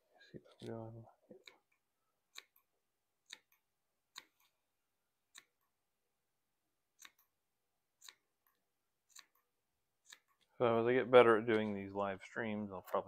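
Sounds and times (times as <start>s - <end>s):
scissors snipping fabric: 7.0s - 7.3s, 8.0s - 10.5s.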